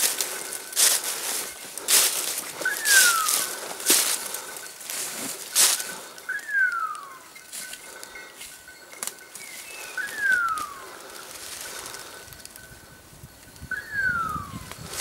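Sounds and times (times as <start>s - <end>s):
dry leaves and twigs crackling: 0.0s - 15.0s
hawk-like screeching call: 2.6s - 3.5s, 9.6s - 10.9s.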